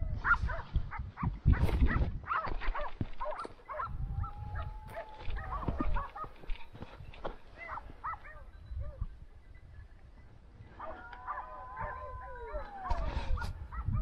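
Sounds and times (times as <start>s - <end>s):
dogs yelping barks: 0.2s - 6.6s, 7.5s - 9.1s, 10.8s - 14.0s
dogs howling: 3.7s - 6.4s, 10.8s - 14.0s.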